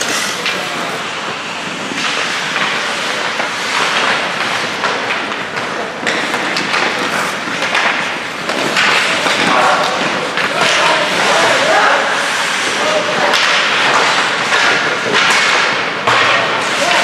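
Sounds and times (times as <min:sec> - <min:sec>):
skate blades hissing on ice: 0:00.0 - 0:09.2
hockey sticks and puck clacking: 0:00.0 - 0:17.0.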